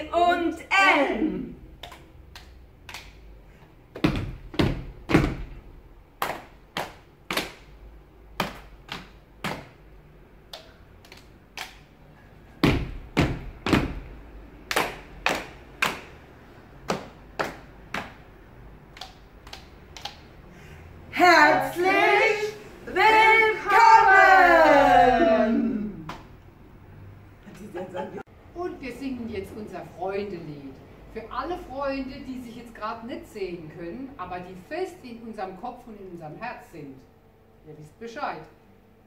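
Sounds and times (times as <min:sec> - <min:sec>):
people clapping: 0:14.6 - 0:18.3.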